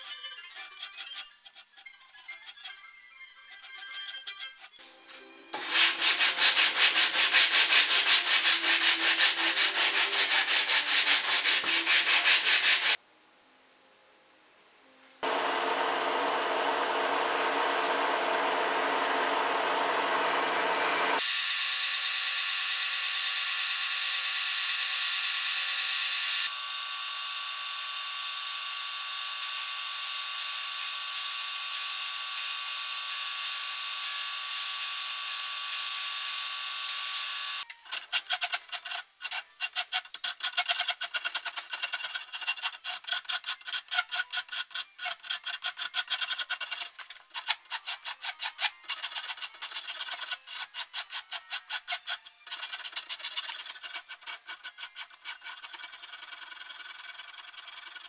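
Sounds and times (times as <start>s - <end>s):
hand file rasping on wood: 5.6s - 13.0s
milling machine cutting wood: 15.2s - 21.2s.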